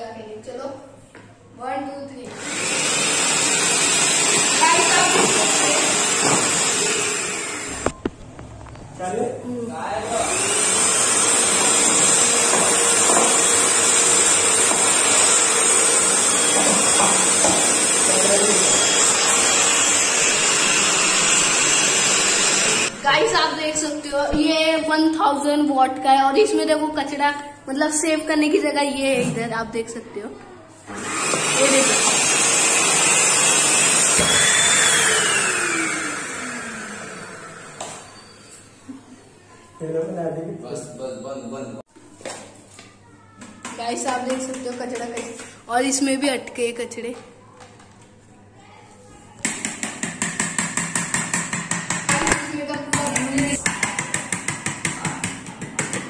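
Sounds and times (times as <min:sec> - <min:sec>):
handheld vacuum cleaner running: 0:02.3 - 0:08.0, 0:10.0 - 0:23.9, 0:30.9 - 0:38.2.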